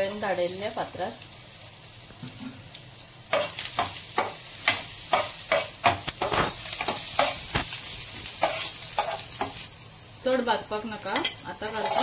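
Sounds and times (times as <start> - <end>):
garlic sizzling in hot oil: 0.0 - 12.0
spoon scraping a pan: 3.3 - 9.7, 11.0 - 12.0.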